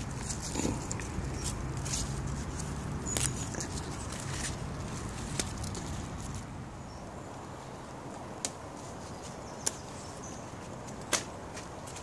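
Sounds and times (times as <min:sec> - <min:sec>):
stems snapping: 0:00.0 - 0:06.5, 0:09.6 - 0:09.9
leaves rustling: 0:00.0 - 0:12.0.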